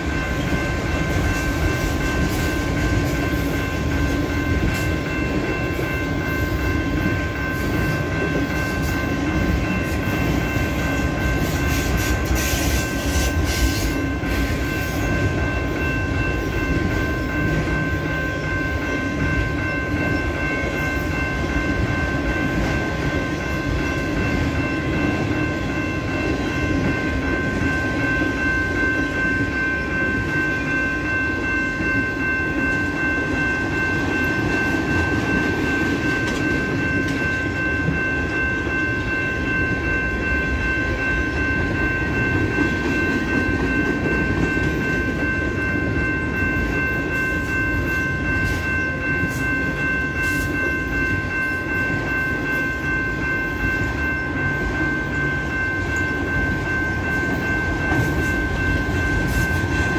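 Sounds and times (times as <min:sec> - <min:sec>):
freight train wheels clattering on rails: 0:00.0 - 0:59.9
level crossing bell ringing: 0:00.0 - 0:59.9.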